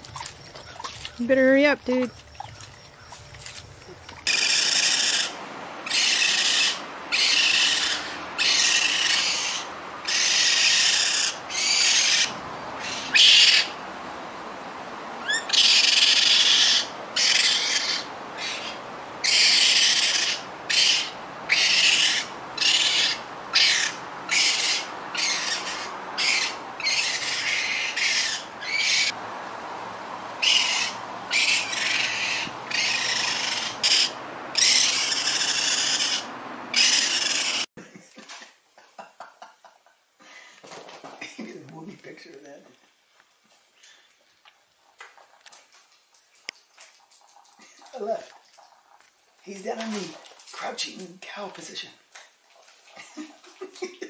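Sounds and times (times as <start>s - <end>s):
baby raccoons screeching: 4.2s - 13.8s, 15.2s - 29.2s, 30.4s - 37.7s.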